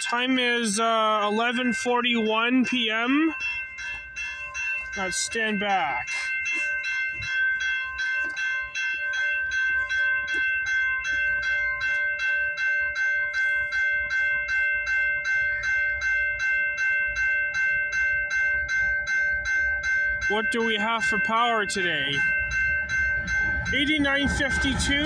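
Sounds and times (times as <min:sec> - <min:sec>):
level crossing warning bell: 0:00.0 - 0:25.0
low rumble: 0:22.4 - 0:25.0.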